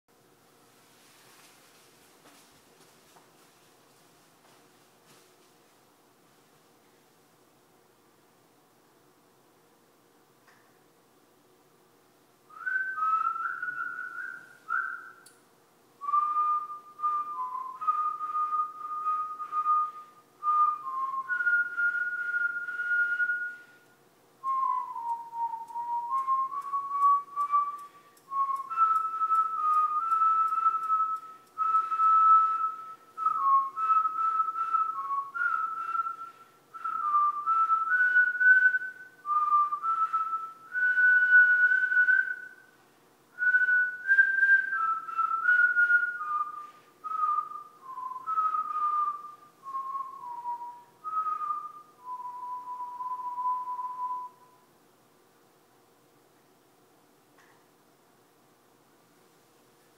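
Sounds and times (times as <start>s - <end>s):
person whistling a tune: 12.5s - 15.4s, 16.0s - 42.8s, 43.4s - 54.7s.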